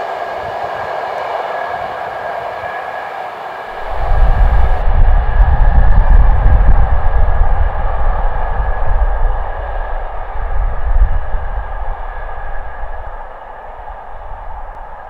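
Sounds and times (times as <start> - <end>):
steam train rumbling: 0.0 - 15.0
loud uneven deep rumble: 3.8 - 15.0.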